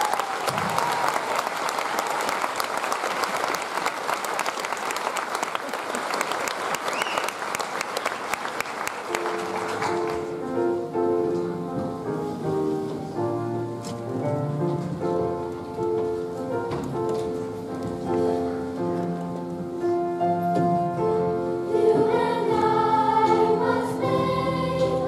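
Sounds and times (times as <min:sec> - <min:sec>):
audience applause: 0:00.0 - 0:10.4
instrumental music held notes: 0:09.1 - 0:25.0.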